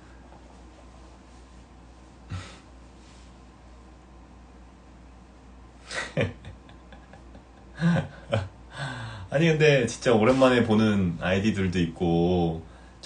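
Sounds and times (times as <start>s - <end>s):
man laughing breathily: 2.3s - 2.7s, 5.8s - 9.3s
man breathing: 2.3s - 3.3s, 7.8s - 9.3s, 12.7s - 13.0s.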